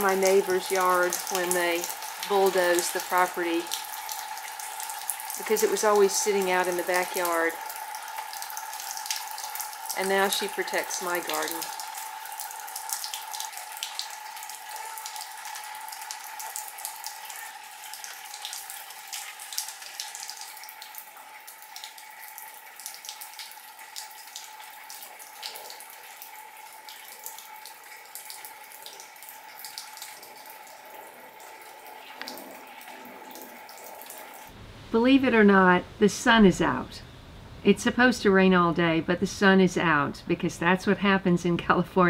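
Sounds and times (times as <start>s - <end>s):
rain dripping off foliage: 0.0s - 35.8s
faint steady hum: 0.0s - 42.0s
steady light hiss: 31.7s - 38.7s.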